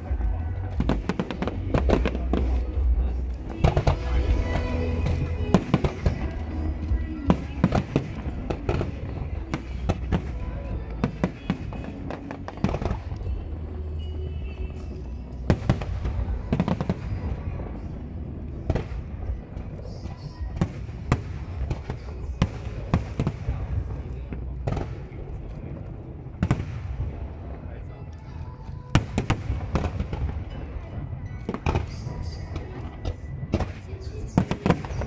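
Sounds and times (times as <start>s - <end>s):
low rumble: 0.0s - 35.0s.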